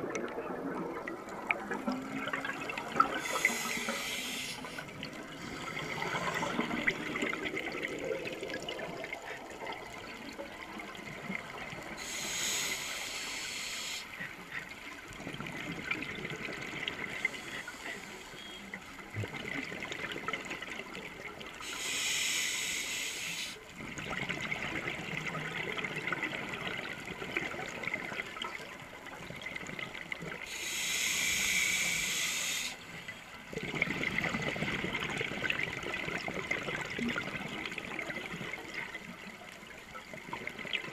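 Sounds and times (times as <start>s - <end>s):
regulator hissing inhalations: 3.2s - 4.8s, 12.0s - 14.3s, 21.6s - 23.6s, 30.5s - 32.9s.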